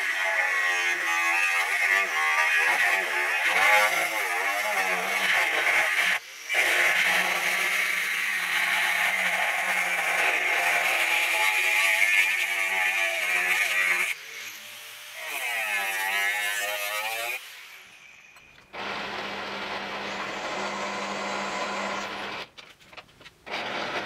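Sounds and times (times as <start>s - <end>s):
angle grinder cutting steel: 0.0s - 22.5s, 23.5s - 24.0s
grinder running free whine: 16.7s - 22.5s, 23.5s - 24.0s.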